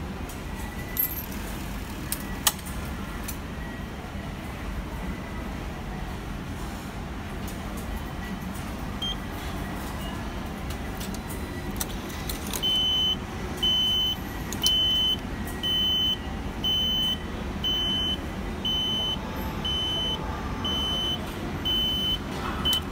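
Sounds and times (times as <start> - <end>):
machine beeping: 11.1 - 22.9.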